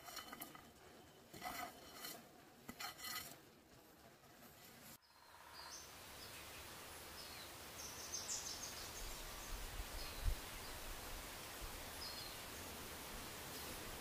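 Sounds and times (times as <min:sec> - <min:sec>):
steady background hiss: 0:05.0 - 0:14.0.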